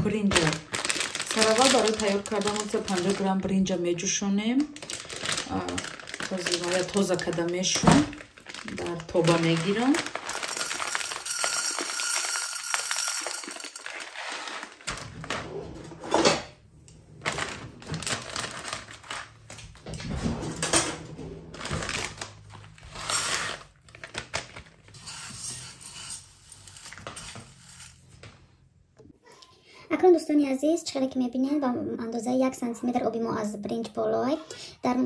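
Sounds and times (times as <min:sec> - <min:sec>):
pot and utensils clinking: 0:10.4 - 0:14.4.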